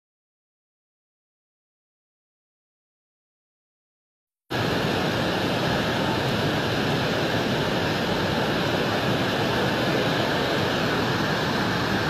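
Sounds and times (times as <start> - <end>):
floodwater rushing: 4.5 - 12.0.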